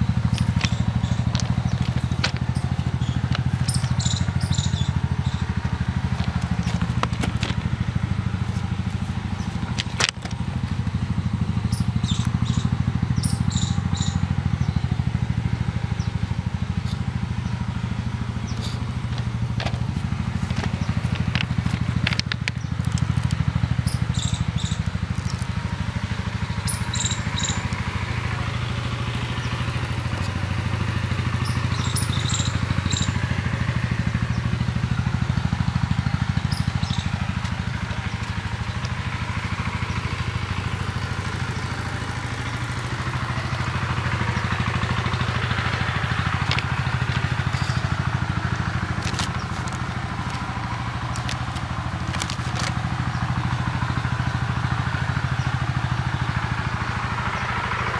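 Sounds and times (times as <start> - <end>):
engine running: 0.0 - 57.9.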